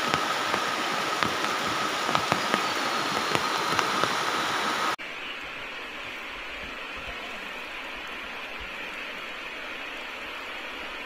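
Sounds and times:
sharp ticks: 0:00.0 - 0:04.9
river water rushing: 0:00.0 - 0:05.0.

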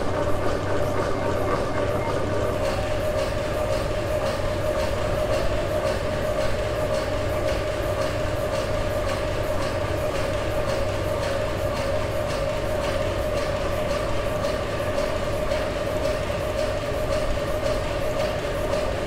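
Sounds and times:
constant whine: 0:00.0 - 0:19.0
steam engine mechanical hum: 0:00.0 - 0:19.0.

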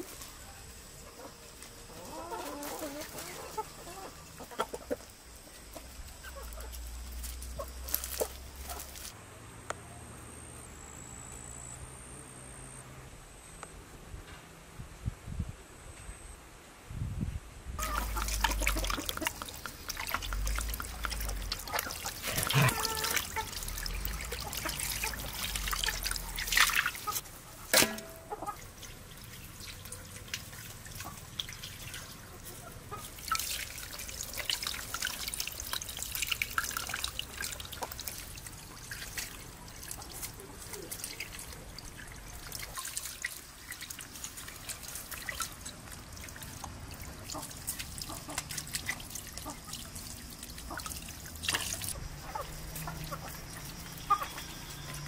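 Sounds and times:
water pouring and splashing: 0:00.0 - 0:09.2, 0:17.8 - 0:55.0
wet handling noises: 0:05.8 - 0:09.2, 0:17.8 - 0:52.0.

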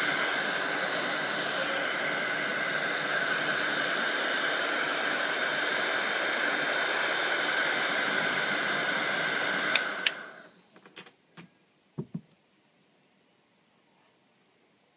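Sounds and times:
hair dryer blowing: 0:00.0 - 0:10.6
hair dryer switch clicks: 0:09.7 - 0:10.2
light knocks: 0:10.8 - 0:12.3.

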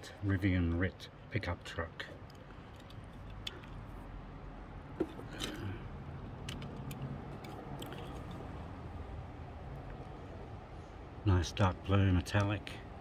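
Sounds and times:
toy cars clicking and tapping: 0:06.4 - 0:08.4.

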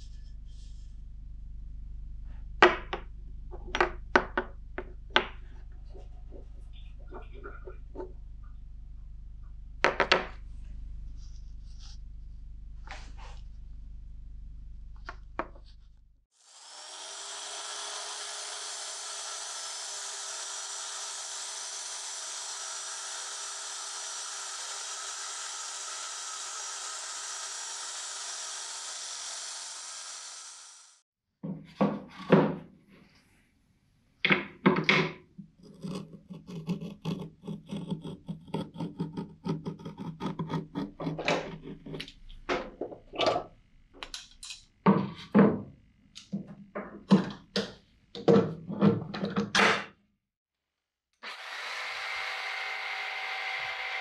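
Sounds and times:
scraping strokes: 0:11.0 - 0:13.6
belt sander grinding steel: 0:16.4 - 0:31.0, 0:35.6 - 0:42.2, 0:51.3 - 0:54.0.

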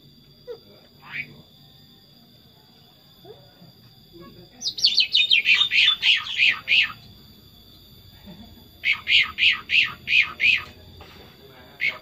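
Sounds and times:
bird singing falling whistled notes: 0:04.6 - 0:07.2.

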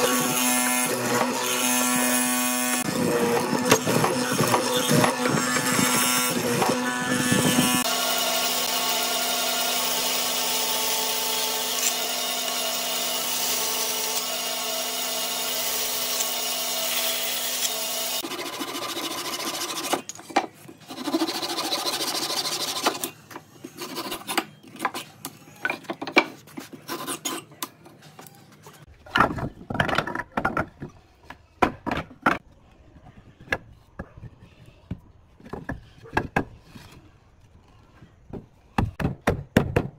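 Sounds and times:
mortising machine boring wood: 0:00.0 - 0:20.0
hand saw cutting wood: 0:00.0 - 0:20.1
wooden pieces knocking: 0:29.0 - 0:32.4.

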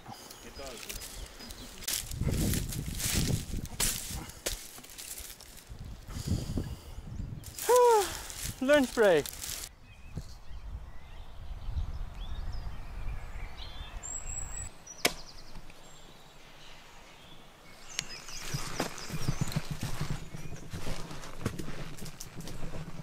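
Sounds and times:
rustling and cracking sticks: 0:00.1 - 0:05.9, 0:07.4 - 0:09.7, 0:18.0 - 0:23.0
wind rumble on microphone: 0:01.9 - 0:04.3, 0:05.6 - 0:08.6, 0:09.7 - 0:14.7.

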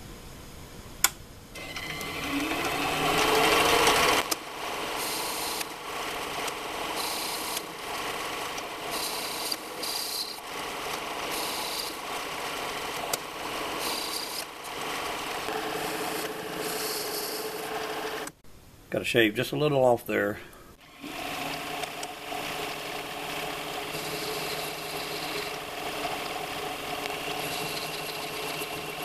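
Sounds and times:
metal lathe whining: 0:01.6 - 0:18.3, 0:20.8 - 0:29.0
cutting tool scraping metal: 0:08.9 - 0:12.2, 0:13.0 - 0:17.7.

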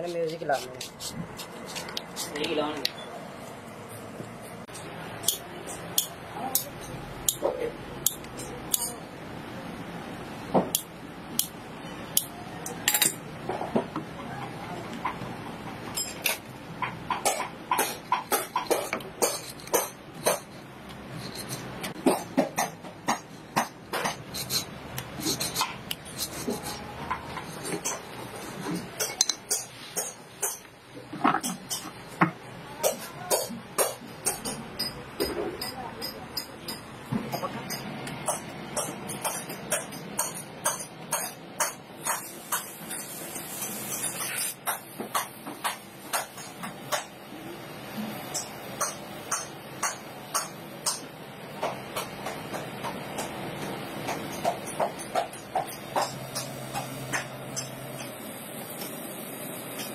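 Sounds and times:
small hammer tapping metal plates: 0:04.7 - 0:09.0, 0:15.9 - 0:20.6, 0:27.0 - 0:43.0, 0:44.5 - 0:47.2, 0:48.3 - 0:58.2.

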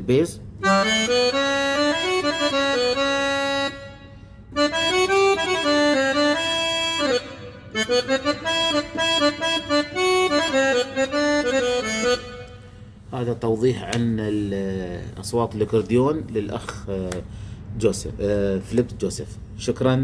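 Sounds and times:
keyboard accordion chords: 0:00.6 - 0:13.1.

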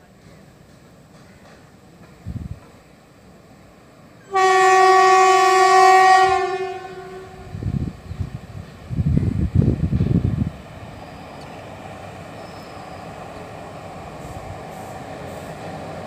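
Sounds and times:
train horn blast: 0:04.2 - 0:07.7.

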